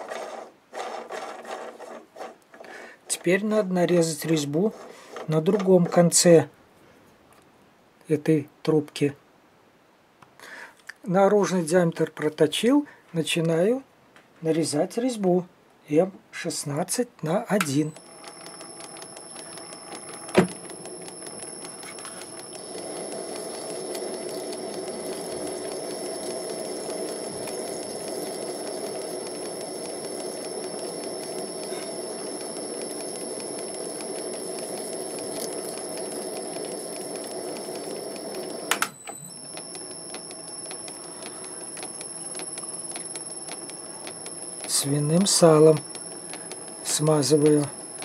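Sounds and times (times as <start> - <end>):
lathe humming with high whine: 17.9 - 48.0.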